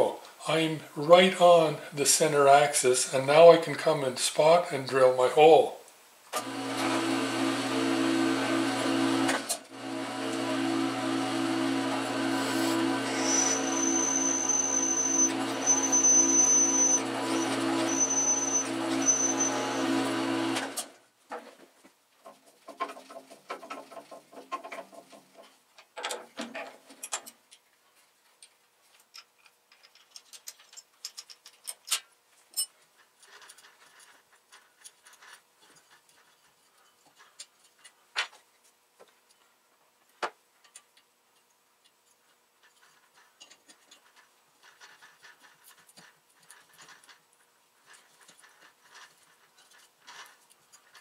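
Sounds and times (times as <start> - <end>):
drill whining: 6.4 - 20.8
clicks and metal scrapes tapping: 21.3 - 51.0.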